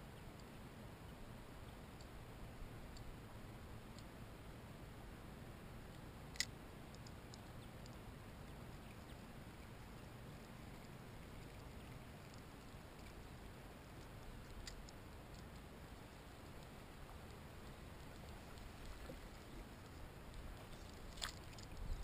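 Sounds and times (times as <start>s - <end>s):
low background noise: 0.0s - 22.0s
faint ticks: 0.1s - 0.6s, 1.9s - 4.2s, 5.8s - 22.0s.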